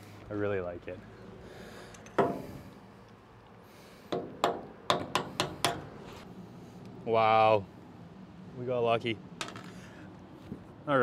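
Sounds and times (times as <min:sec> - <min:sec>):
hammer striking steel chisel: 0:04.1 - 0:05.9.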